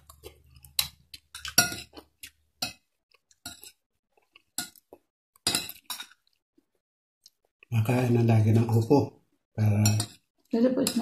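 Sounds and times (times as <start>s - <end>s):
spoon and fork clinking on bowl: 9.8s - 10.2s.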